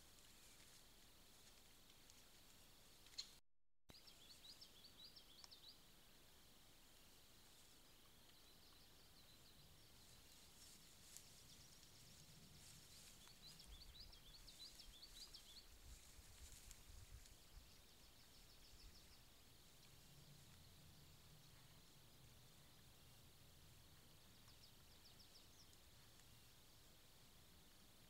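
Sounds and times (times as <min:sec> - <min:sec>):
faint low rumble: 0:05.9 - 0:28.0.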